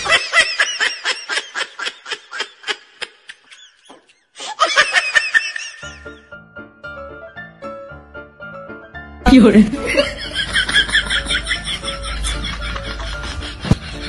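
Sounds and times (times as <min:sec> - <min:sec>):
person laughing: 0:00.0 - 0:06.2, 0:09.8 - 0:14.0
music: 0:05.8 - 0:14.0.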